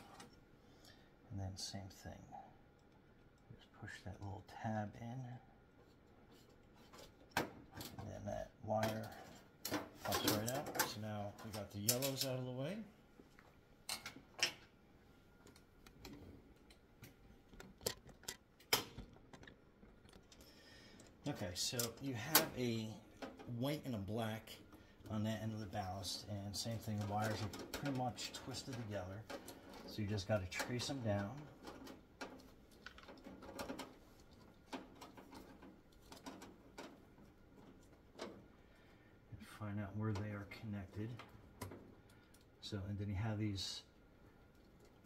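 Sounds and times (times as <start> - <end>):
wiring being handled: 8.8 - 12.5, 13.2 - 23.7, 26.0 - 38.6, 43.9 - 45.0.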